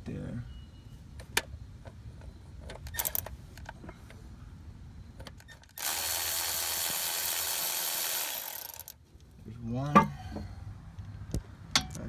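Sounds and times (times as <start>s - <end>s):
electric ratchet running: 5.7s - 9.0s.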